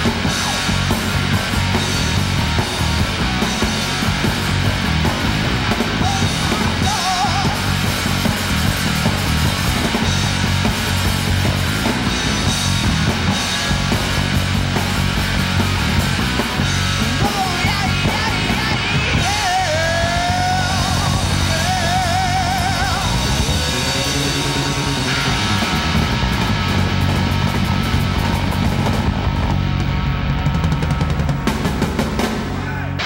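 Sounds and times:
bass guitar: 0.0 - 33.0
drum kit: 0.0 - 33.0
electric guitar: 0.0 - 33.0
man singing: 6.0 - 7.7, 17.0 - 24.2.

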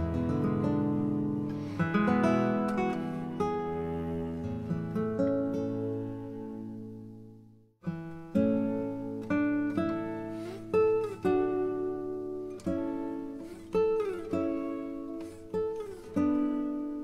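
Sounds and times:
guitar chords ringing: 0.0 - 17.0.

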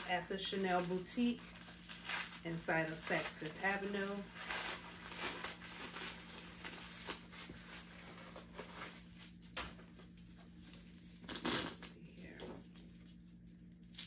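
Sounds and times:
protective wrapping rustling: 0.0 - 9.5.

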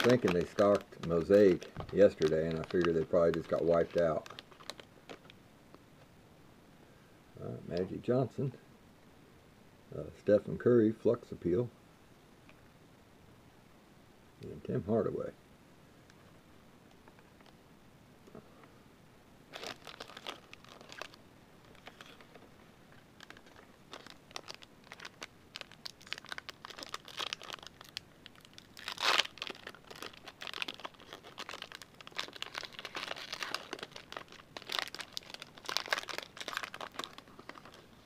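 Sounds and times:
foil wrapper tearing and crinkling: 0.0 - 5.4, 19.5 - 22.4, 23.2 - 38.0.

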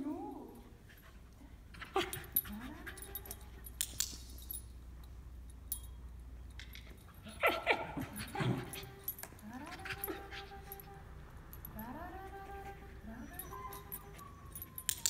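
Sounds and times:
dog whining: 1.6 - 3.7, 7.2 - 15.0
dog yipping: 1.8 - 3.6, 7.2 - 11.0, 12.6 - 15.0.

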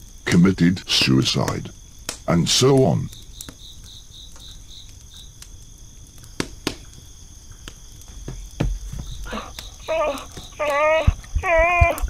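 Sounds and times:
crickets chirping: 0.0 - 12.0
sharp clicks: 1.4 - 3.6.

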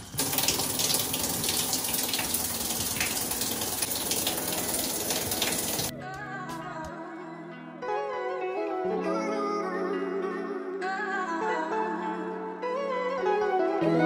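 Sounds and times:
mixing valve turning: 0.0 - 5.9
shower spraying water: 0.0 - 5.9.

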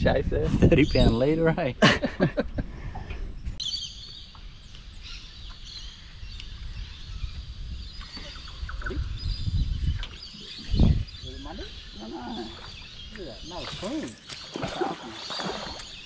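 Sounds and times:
birds calling: 0.6 - 16.0
bird twittering: 3.6 - 16.0.

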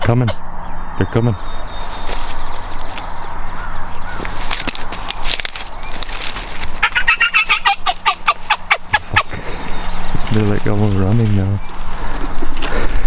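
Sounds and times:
turkeys calling: 0.0 - 13.0.

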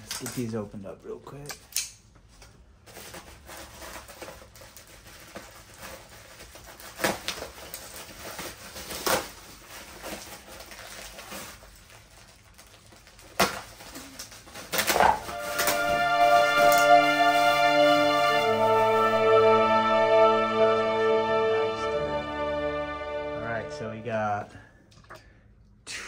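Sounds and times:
bubble wrap rustling and crinkling: 2.3 - 19.2
bubble wrap snapping: 2.9 - 17.5.

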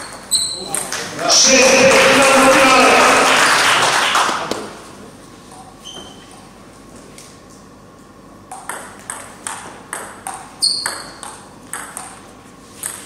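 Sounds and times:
brief high squeak: 5.8 - 6.4
table tennis ball hits: 8.5 - 12.2.

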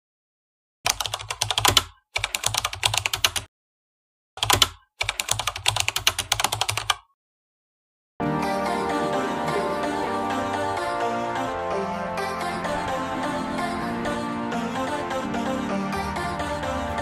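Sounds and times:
rapid keyboard key clicks: 0.9 - 3.5, 4.4 - 7.1
music: 8.2 - 17.0.

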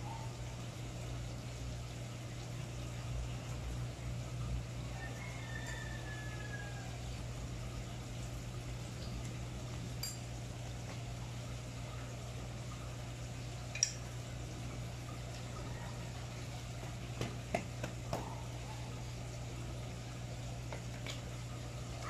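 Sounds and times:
steady low hum: 0.0 - 22.0
small knocks on bicycle parts: 17.2 - 18.3.

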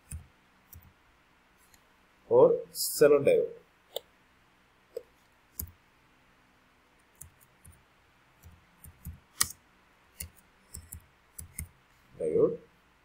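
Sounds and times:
computer keyboard keystrokes: 10.2 - 11.7.

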